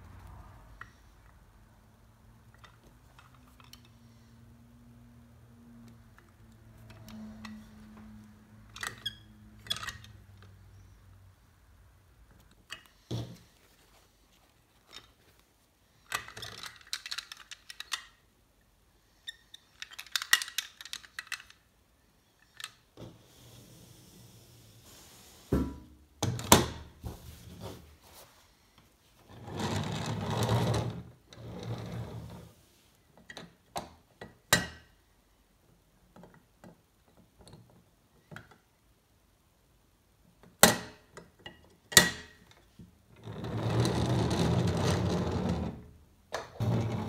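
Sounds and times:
toy parts clicking and snapping: 16.0 - 18.2, 19.6 - 21.7.

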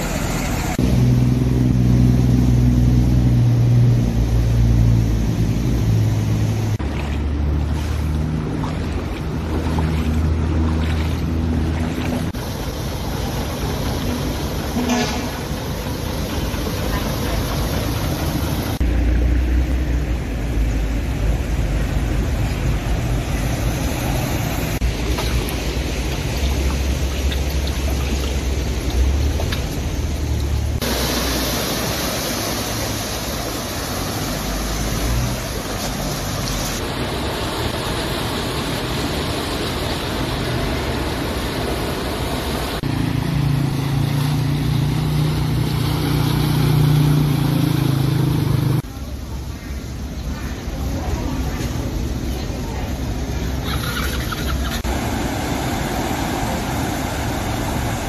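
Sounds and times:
vehicles driving through water: 0.0 - 58.0
water splashing from wheels: 0.0 - 58.0.

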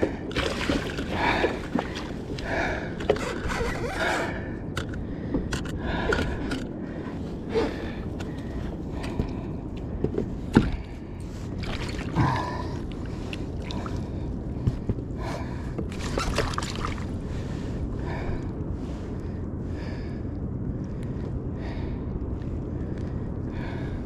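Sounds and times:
person breathing heavily: 0.0 - 3.1, 3.8 - 16.0, 17.1 - 24.0
water noise: 0.0 - 18.2.

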